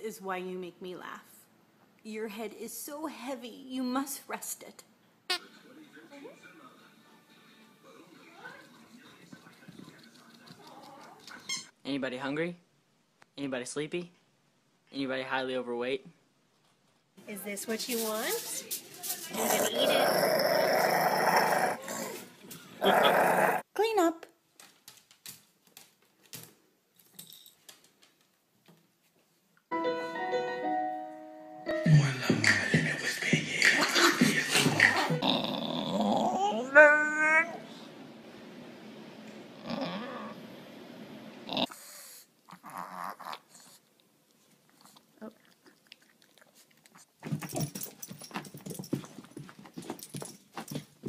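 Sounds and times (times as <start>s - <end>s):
piano-like keyboard notes: 29.7s - 32.3s.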